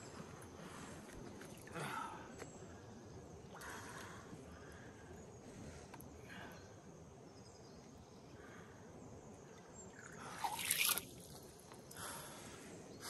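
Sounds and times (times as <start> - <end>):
water sloshing and dripping: 10.0 - 11.5
fish splashing in water: 10.2 - 11.2.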